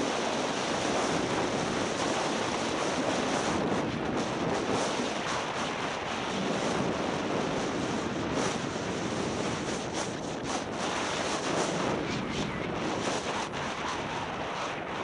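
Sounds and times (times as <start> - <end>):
wind buffeting microphone: 0.0 - 15.0
skis scraping on snow: 6.4 - 14.7.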